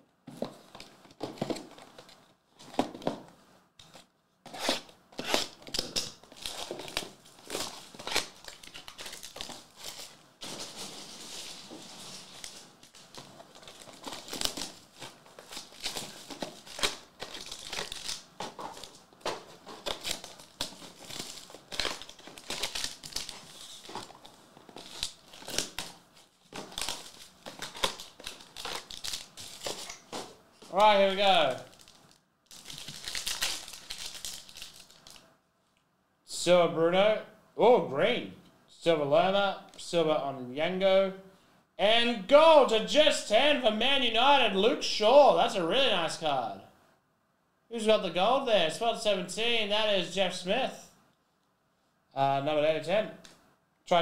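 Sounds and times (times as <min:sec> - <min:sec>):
cardboard tearing: 0:04.5 - 0:26.0
foil packs crinkling: 0:05.2 - 0:35.2.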